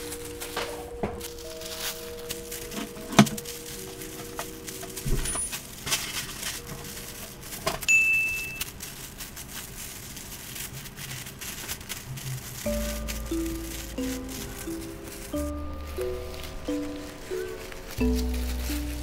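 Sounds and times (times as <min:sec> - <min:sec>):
soft background music: 0:00.0 - 0:07.7, 0:12.5 - 0:19.0
tissue paper crinkling: 0:00.0 - 0:19.0
high ding: 0:07.9 - 0:08.6.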